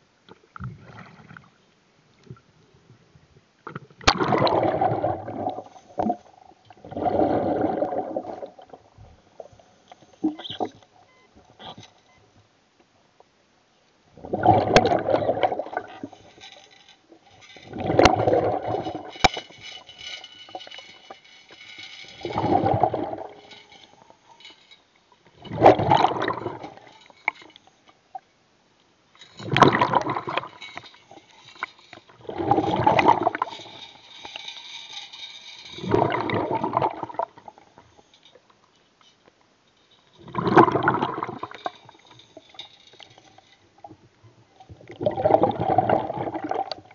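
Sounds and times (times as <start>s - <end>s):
underwater gurgling: 3.6s - 9.6s, 14.2s - 20.7s, 22.1s - 24.2s, 25.3s - 27.5s, 29.3s - 34.4s, 35.8s - 37.9s, 40.2s - 46.9s.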